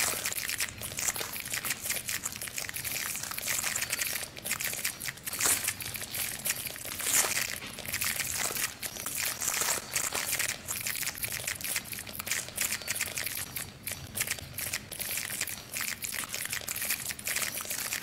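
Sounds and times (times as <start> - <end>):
dense crinkling and crackling: 0.0 - 13.5.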